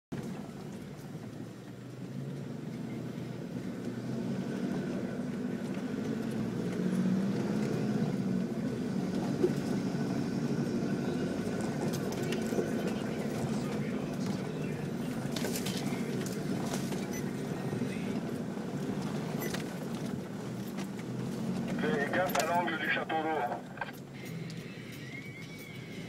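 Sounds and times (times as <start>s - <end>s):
engine running at low revs: 0.1s - 26.0s.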